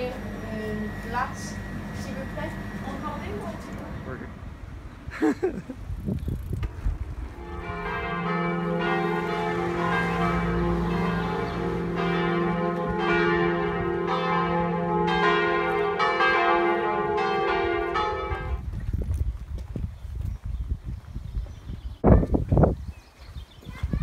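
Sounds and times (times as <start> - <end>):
church bells ringing: 0.0 - 4.2, 7.3 - 18.6.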